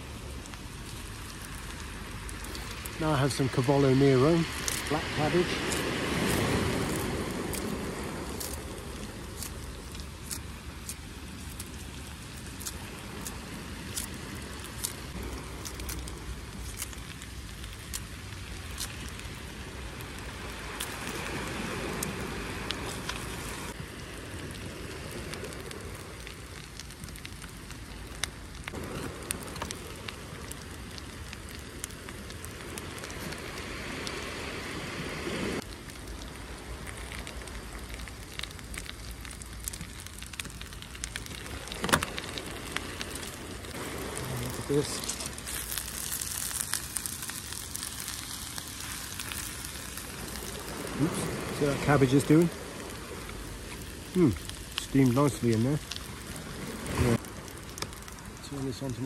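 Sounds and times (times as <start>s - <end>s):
food sizzling in a frying pan: 39.3s - 59.0s.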